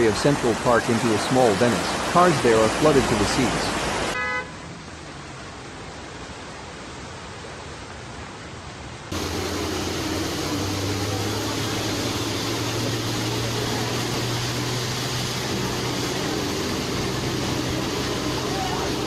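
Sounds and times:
constant hiss: 0:00.0 - 0:19.0
vehicle engine running: 0:09.1 - 0:19.0.

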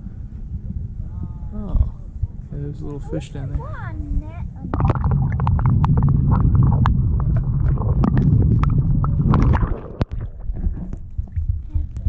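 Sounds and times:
muffled underwater rumble: 0:00.0 - 0:12.0
underwater bubbling clicks and pops: 0:04.6 - 0:12.0.

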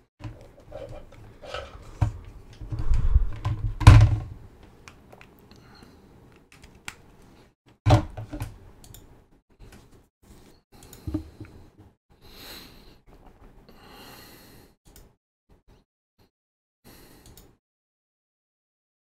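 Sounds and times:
computer mouse clicks: 0:10.8 - 0:11.1.

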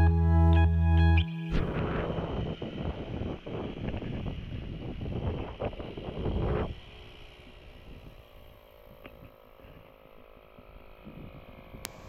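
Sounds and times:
tyre inflator humming: 0:00.0 - 0:12.0
wind buffeting microphone: 0:01.5 - 0:08.3.

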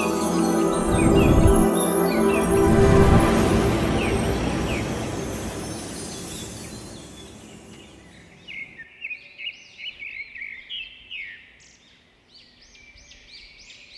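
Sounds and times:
background music: 0:00.0 - 0:08.4.

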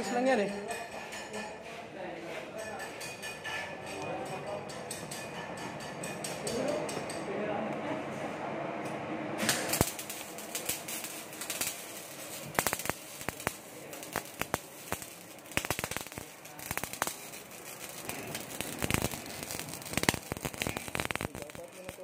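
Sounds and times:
welding arc hissing and crackling: 0:09.4 - 0:22.0.

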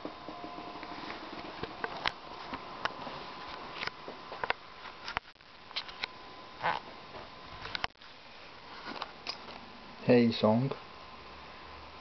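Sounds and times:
faint high hum: 0:00.0 - 0:12.0
steady background hiss: 0:00.0 - 0:12.0
camera handling clicks and rustles: 0:03.8 - 0:06.1.

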